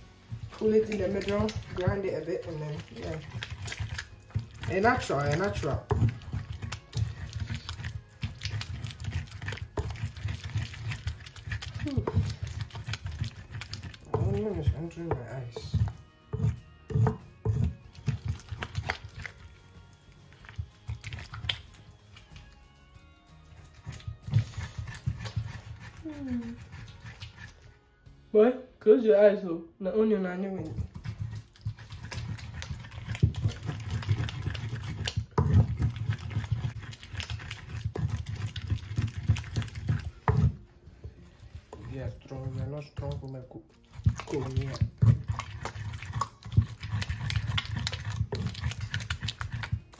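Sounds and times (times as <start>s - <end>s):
wooden pestle knocking in bowl: 0.3s - 19.4s, 23.8s - 27.5s, 30.6s - 49.9s.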